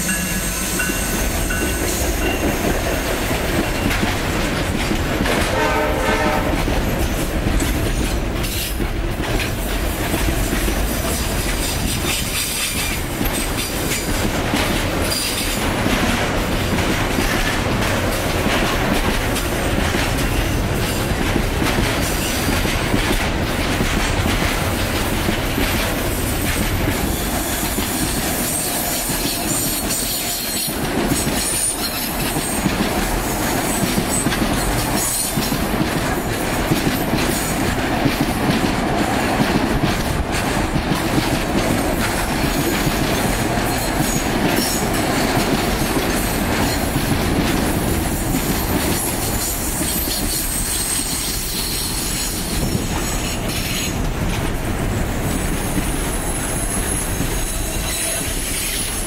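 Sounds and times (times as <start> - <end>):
train wheels rumbling on rails: 0.0 - 59.0
clatter over rail joints: 2.4 - 28.3.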